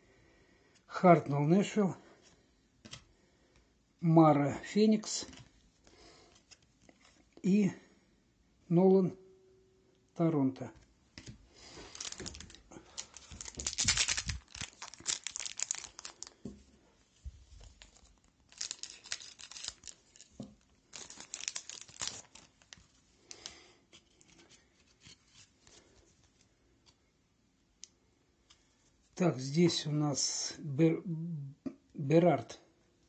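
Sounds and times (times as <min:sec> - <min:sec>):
card pack wrapper crinkling and tearing: 0:11.6 - 0:16.5, 0:17.6 - 0:23.6.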